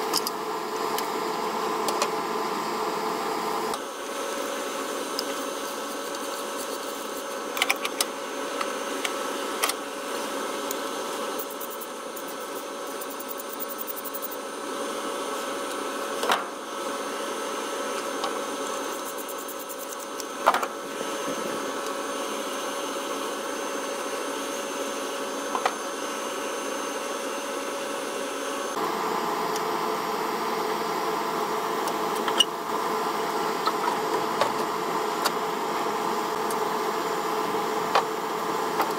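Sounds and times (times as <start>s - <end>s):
steady mechanical hum: 0.0s - 38.9s.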